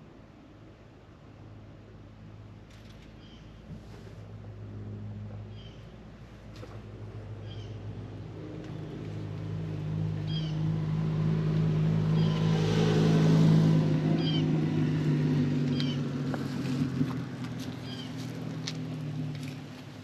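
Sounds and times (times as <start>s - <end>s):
small bird chirping: 15.7s - 16.0s.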